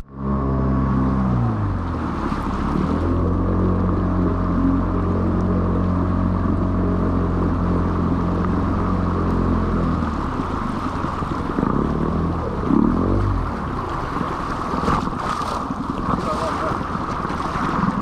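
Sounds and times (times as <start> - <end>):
outboard motor running: 0.0 - 18.0
water rushing: 0.0 - 18.0.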